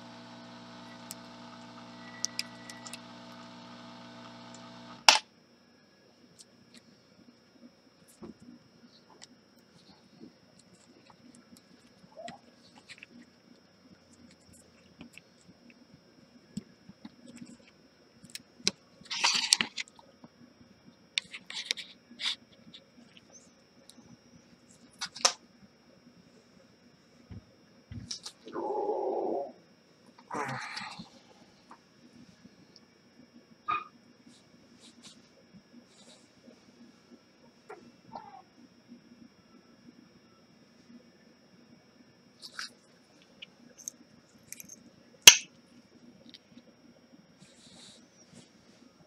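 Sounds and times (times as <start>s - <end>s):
electrical hum of bench equipment: 0.0s - 49.0s
tools clicking on circuit board: 43.8s - 45.5s.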